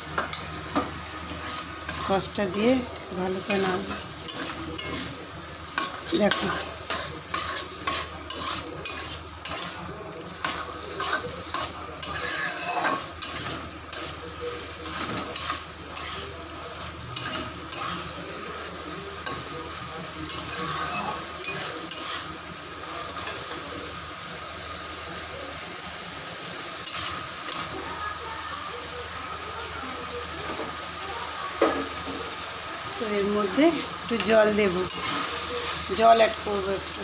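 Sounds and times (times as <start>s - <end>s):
sauce sizzling: 0.0s - 37.0s
metal spatula scraping wok: 1.2s - 18.3s, 20.3s - 22.4s, 34.1s - 37.0s.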